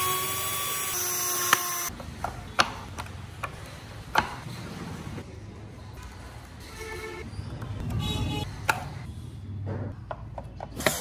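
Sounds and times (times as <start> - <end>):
cordless drill motor whining: 0.0 - 1.9.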